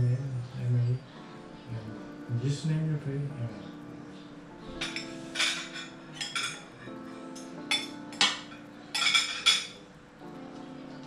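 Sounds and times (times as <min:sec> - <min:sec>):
soft background music: 0:00.0 - 0:11.0
spoons clinking on ceramic bowls: 0:04.7 - 0:09.8.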